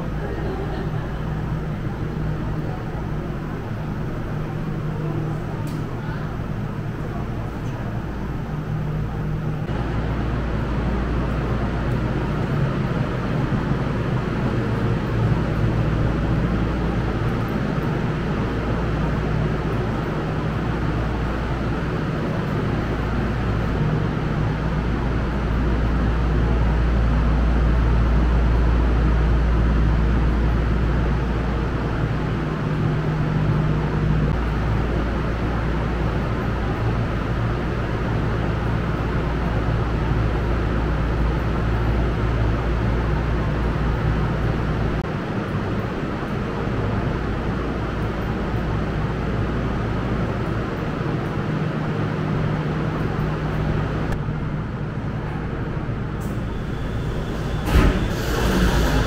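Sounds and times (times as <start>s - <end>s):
low rumble and hum: 0.0s - 59.0s.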